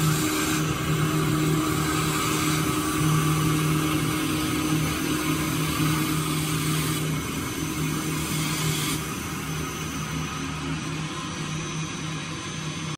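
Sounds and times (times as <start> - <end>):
hiss of wood being cut: 0.0 - 10.2
lathe motor humming: 0.0 - 12.7.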